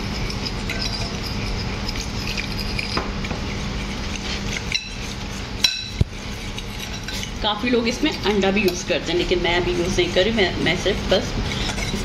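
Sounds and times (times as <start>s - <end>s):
spoon stirring batter in glass bowl: 0.0s - 12.0s
steady low hum: 0.0s - 12.0s
spoon clinking against glass: 0.5s - 3.0s.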